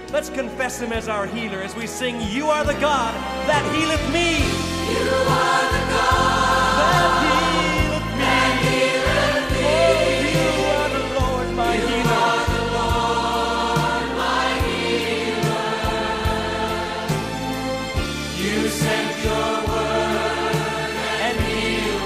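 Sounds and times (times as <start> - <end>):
band playing: 0.0 - 22.0
choir singing: 4.4 - 22.0.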